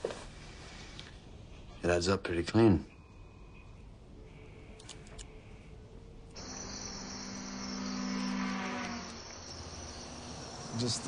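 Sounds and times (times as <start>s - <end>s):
insects chirring: 6.3s - 11.0s.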